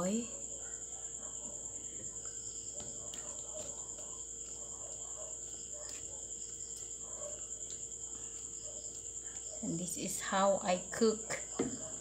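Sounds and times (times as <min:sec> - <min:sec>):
spatula stirring food in pan: 0:01.4 - 0:10.3.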